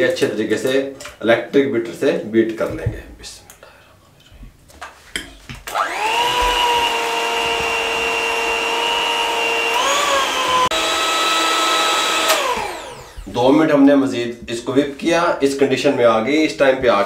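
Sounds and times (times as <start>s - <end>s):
electric hand mixer whining: 5.6s - 13.5s.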